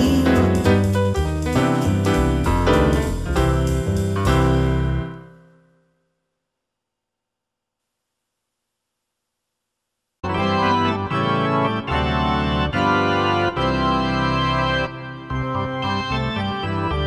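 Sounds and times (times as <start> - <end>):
organ playing held chords: 10.2 - 17.0.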